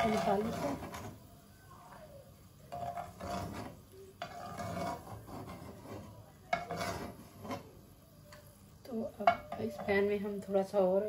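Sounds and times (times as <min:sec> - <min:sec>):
plastic spoon scraping a wok: 0:00.0 - 0:01.2, 0:02.7 - 0:07.8.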